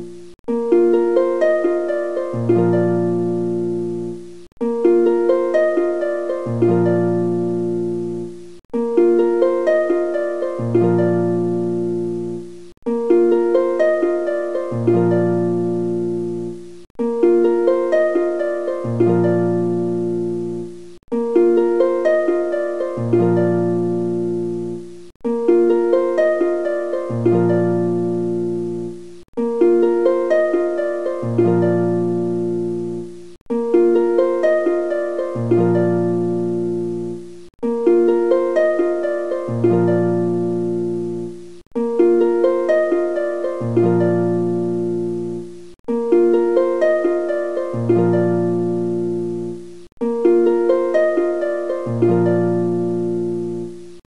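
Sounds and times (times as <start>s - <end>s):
gentle plucked-string tune: 0.0s - 54.0s.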